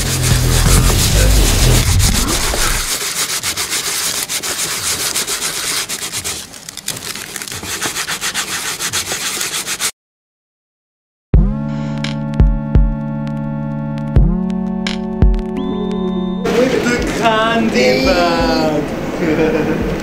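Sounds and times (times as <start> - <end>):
sandpaper rasping on filler: 0.0 - 6.6, 7.2 - 9.9.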